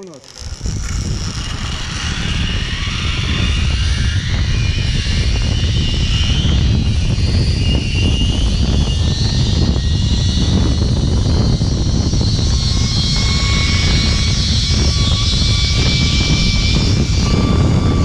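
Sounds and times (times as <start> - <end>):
wind rumbling on microphone: 0.0 - 18.0
zip line pulleys whirring: 0.0 - 18.0.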